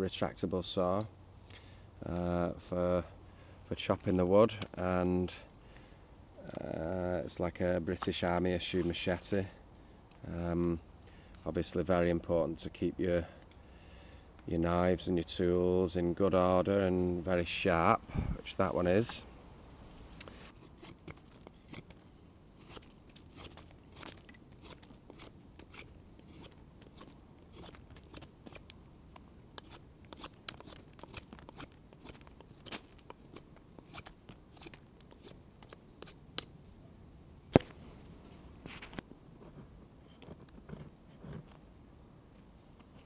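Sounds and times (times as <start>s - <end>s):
knife shaving wood: 20.5s - 28.7s, 29.6s - 36.2s
sharp wood crack: 22.6s - 36.6s, 37.5s - 37.8s.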